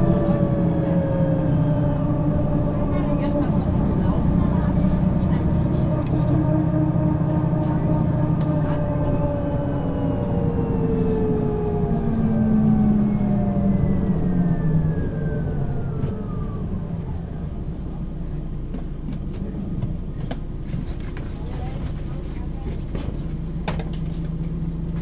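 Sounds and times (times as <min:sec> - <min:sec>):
bus engine slowing down: 0:00.0 - 0:25.0.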